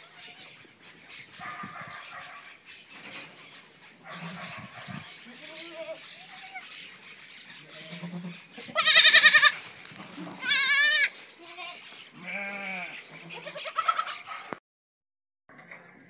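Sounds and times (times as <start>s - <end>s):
goats bleating: 5.2s - 6.7s, 7.6s - 14.3s.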